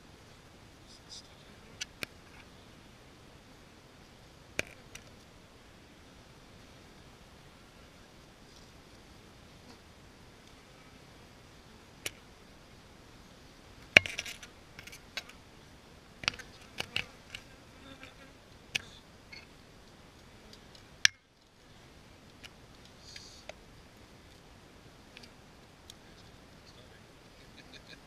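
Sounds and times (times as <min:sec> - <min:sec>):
honey bees buzzing: 0:13.2 - 0:19.0.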